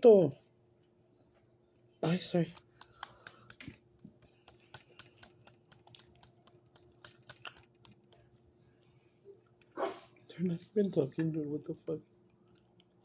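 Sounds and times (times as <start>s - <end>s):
low steady hum: 0.0s - 13.0s
light clicks and taps: 2.4s - 8.3s.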